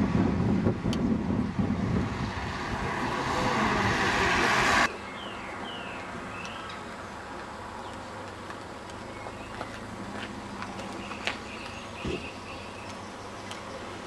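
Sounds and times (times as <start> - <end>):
car passing close: 0.0 - 14.0
birds chirping: 4.6 - 14.0.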